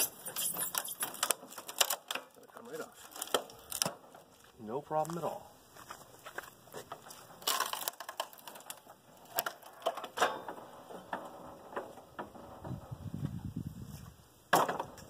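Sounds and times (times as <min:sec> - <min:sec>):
wooden boards knocking: 0:14.5 - 0:15.0.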